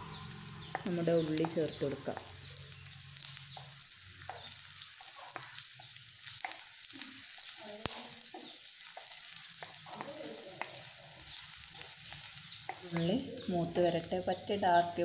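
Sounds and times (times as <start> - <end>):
shallots sizzling in oil: 0.0 - 15.0.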